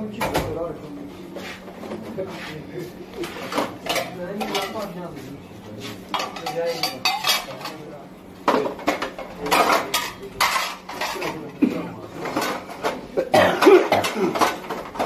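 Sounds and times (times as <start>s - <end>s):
dishes and cutlery clattering: 3.2s - 5.0s, 6.1s - 7.8s, 8.4s - 15.0s.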